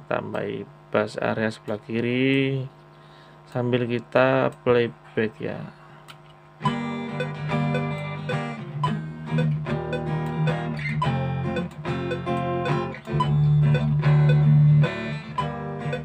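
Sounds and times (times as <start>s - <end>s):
acoustic guitar chords: 6.6s - 16.0s.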